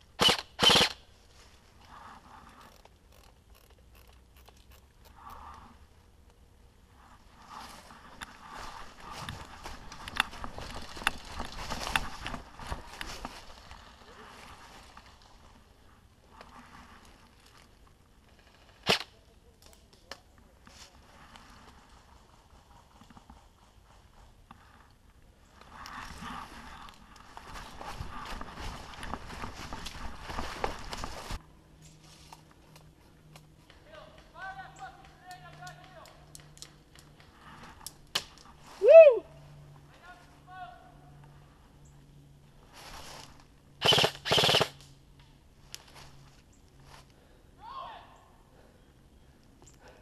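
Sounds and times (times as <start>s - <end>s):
airsoft gun bursts: 0.2s - 1.0s, 43.8s - 44.8s
rustling in dry leaves: 0.9s - 2.5s, 6.9s - 19.2s, 20.5s - 33.1s, 42.4s - 44.6s, 45.5s - 47.4s.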